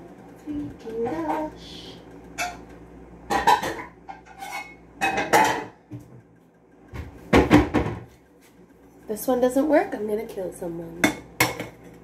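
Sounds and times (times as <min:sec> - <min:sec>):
metal pots and pans clattering: 0:03.3 - 0:05.8, 0:11.1 - 0:12.0.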